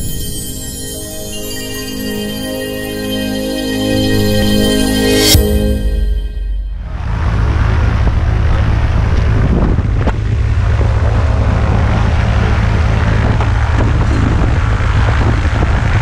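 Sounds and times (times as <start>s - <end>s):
music: 0.0s - 7.2s
propeller aircraft engine rumble: 6.8s - 16.0s.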